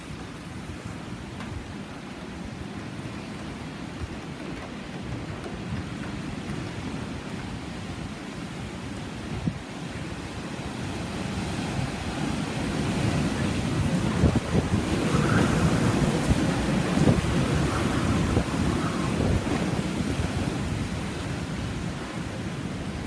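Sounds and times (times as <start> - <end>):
heavy rain: 0.0 - 23.0
strong gusting wind: 0.0 - 23.0
wind buffeting microphone: 0.0 - 23.0.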